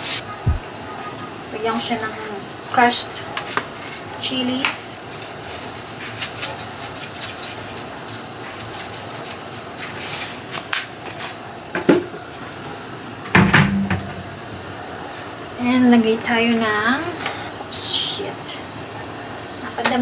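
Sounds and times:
thump: 13.4s - 14.2s.

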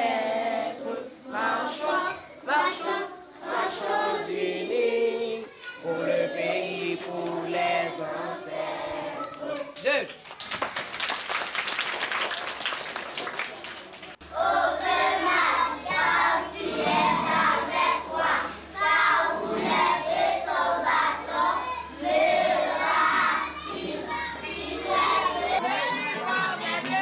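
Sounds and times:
crowd of children singing: 0.0s - 9.7s, 14.2s - 27.0s
small group of children singing: 0.0s - 9.8s, 14.1s - 27.0s
hand clapping: 9.2s - 14.2s
steady low hum: 14.2s - 25.6s.

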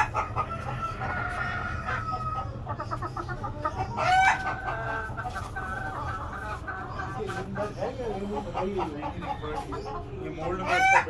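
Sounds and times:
rooster crowing: 0.0s - 2.6s
chickens clucking: 0.0s - 11.0s.

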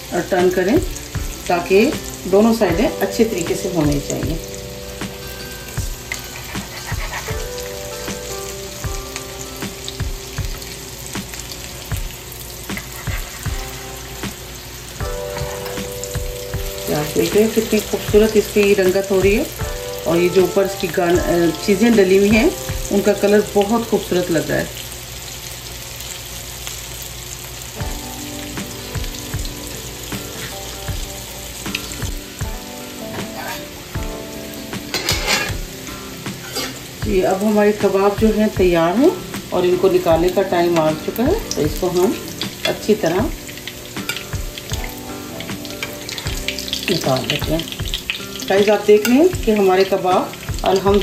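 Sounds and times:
soft background music with beat: 0.0s - 24.1s, 27.8s - 51.0s
patties sizzling in oil: 0.0s - 51.0s
metal tongs knocking pan: 34.8s - 35.6s, 36.4s - 37.3s, 44.0s - 44.3s.

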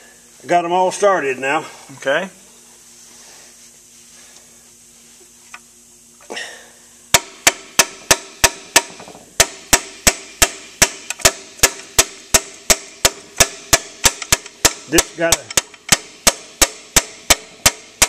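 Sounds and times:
hammer tapping on metal: 7.1s - 17.8s.

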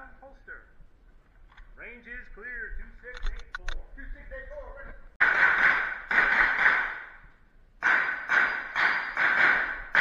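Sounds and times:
pistol shots: 5.2s - 7.2s, 7.8s - 10.0s.

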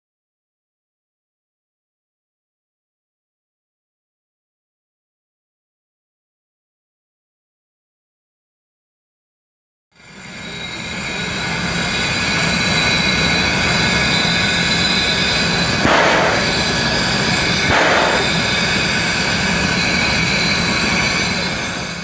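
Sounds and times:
steam hissing: 10.1s - 22.0s
rushes of steam: 10.2s - 22.0s.

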